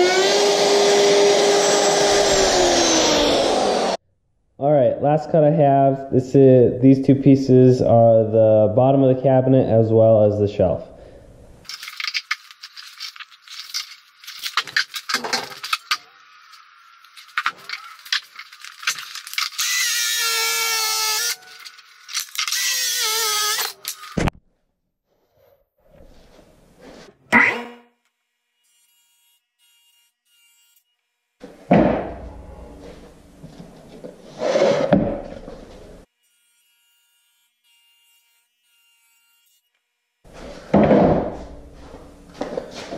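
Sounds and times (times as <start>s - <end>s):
wooden thump: 31.4s - 33.6s, 40.7s - 41.6s
plywood scraping and rubbing: 32.6s - 36.0s.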